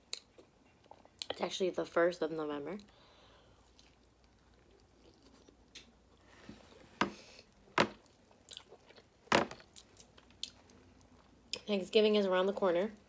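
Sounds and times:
person chewing food: 2.8s - 11.6s.

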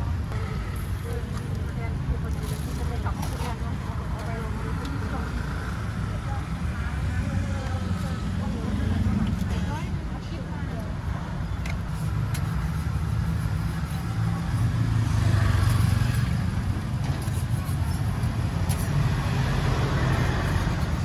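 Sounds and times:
motor traffic rumble: 0.0s - 21.0s.

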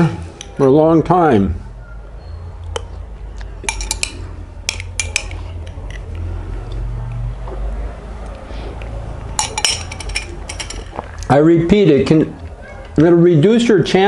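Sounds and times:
low steady hum: 0.0s - 13.0s
spoon clinking against glass: 3.6s - 5.4s, 9.4s - 11.0s.

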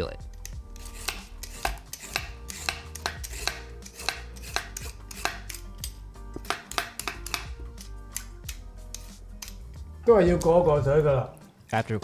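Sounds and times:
vegetable peeler scraping: 0.5s - 9.7s.

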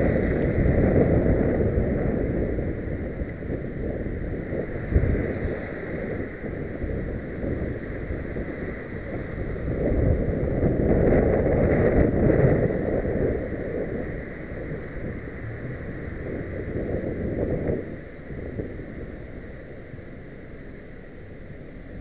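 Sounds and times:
road noise: 0.0s - 22.0s
wind buffeting microphone: 0.0s - 22.0s
car passing close: 13.3s - 19.0s.

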